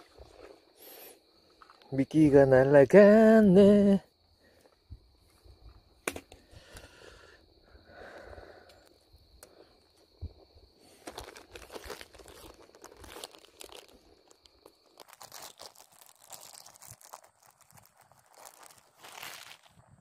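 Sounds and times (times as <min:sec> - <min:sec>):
plastic crinkling and rustling: 0:10.8 - 0:20.0.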